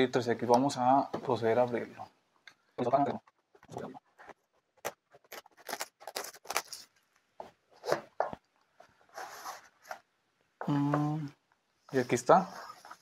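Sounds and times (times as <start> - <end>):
plastic wrap crinkling: 4.8 - 7.3.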